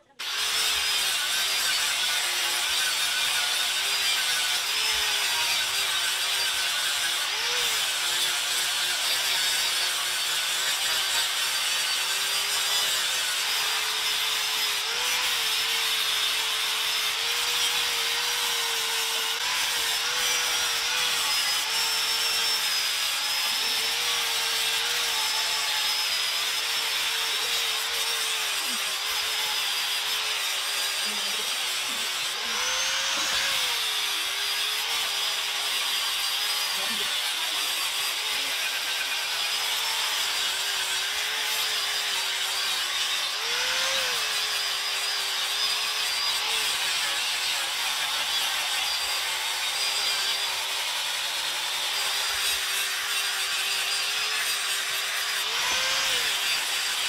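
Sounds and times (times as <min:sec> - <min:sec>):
power tool whining into wood: 0:00.0 - 0:57.0.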